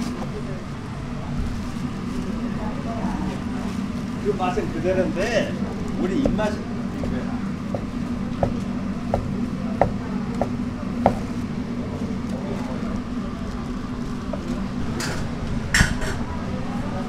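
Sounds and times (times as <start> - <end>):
steady low hum: 0.0 - 17.0
cleaver knocking on cutting board: 7.7 - 11.2.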